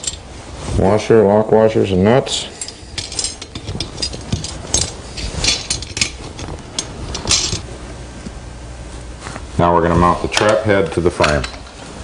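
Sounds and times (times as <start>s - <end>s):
metal hardware clinking: 0.0s - 0.3s, 2.4s - 7.6s.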